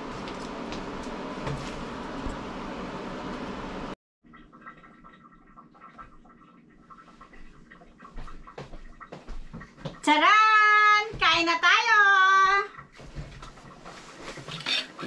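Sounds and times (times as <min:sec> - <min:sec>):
range hood fan running: 0:00.0 - 0:04.0.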